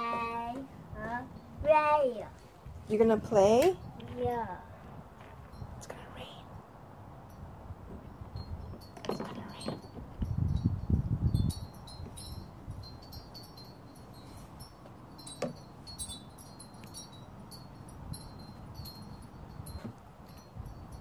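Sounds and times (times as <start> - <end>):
wind chimes tinkling: 7.2 - 21.0.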